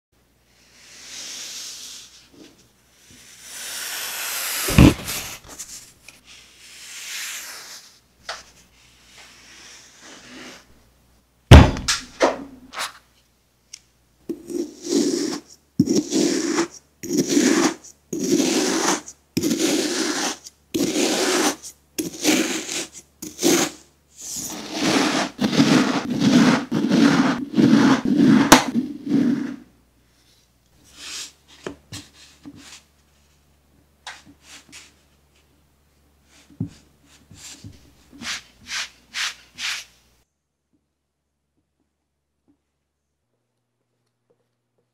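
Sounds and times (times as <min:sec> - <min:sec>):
sand pressed and rubbed by hand: 0:00.5 - 0:10.8, 0:14.4 - 0:29.7, 0:36.2 - 0:40.0
plastic knife slicing sand: 0:03.2 - 0:05.8, 0:14.8 - 0:29.6
sharp thumps: 0:04.7 - 0:05.6, 0:11.5 - 0:12.4.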